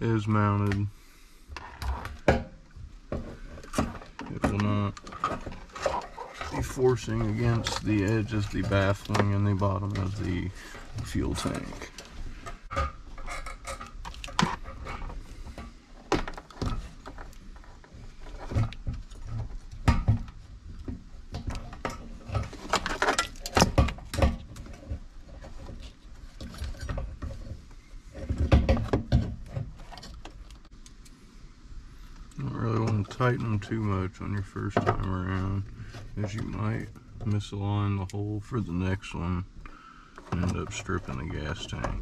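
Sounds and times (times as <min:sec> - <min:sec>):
plastic and metal parts rattling: 0:01.6 - 0:30.7, 0:40.2 - 0:42.0.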